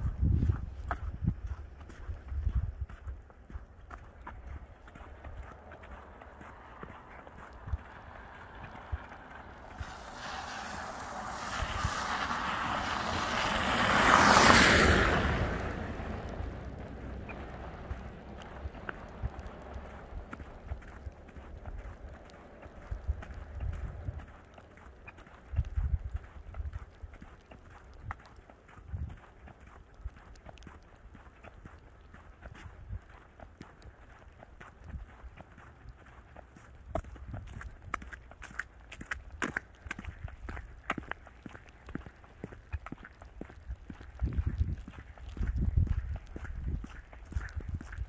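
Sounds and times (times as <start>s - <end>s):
footsteps in snow: 0.0s - 14.4s
wind rumble on microphone: 0.0s - 48.0s
car tyres hissing through snow: 4.9s - 23.6s.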